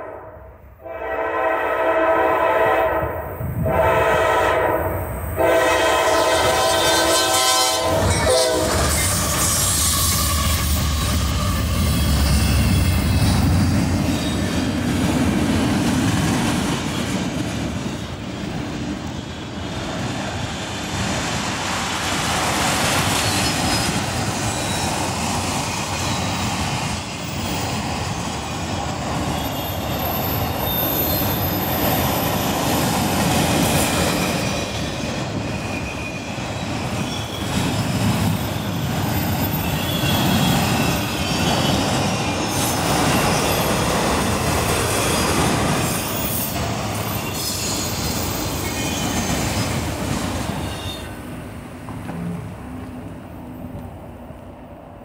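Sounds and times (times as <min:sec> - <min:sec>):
steel wheels rumbling on rails: 0:00.8 - 0:54.7
high-pitched wheel squeal: 0:06.7 - 0:12.9, 0:34.4 - 0:37.6, 0:38.4 - 0:43.9, 0:45.9 - 0:49.8, 0:50.6 - 0:51.2.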